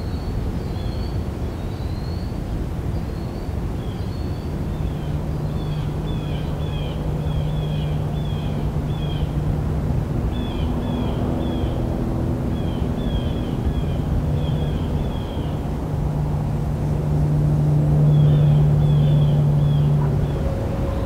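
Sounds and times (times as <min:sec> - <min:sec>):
bird chirping: 0:03.2 - 0:09.4
low engine drone: 0:03.5 - 0:21.0.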